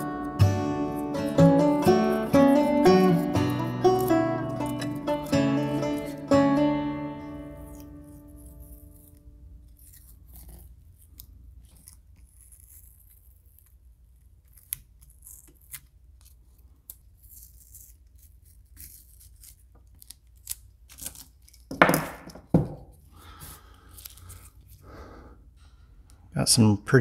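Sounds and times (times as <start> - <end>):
tape ripping: 0.0 - 6.4, 7.2 - 22.2
tape crackling and rustling: 1.0 - 6.6, 7.2 - 24.9.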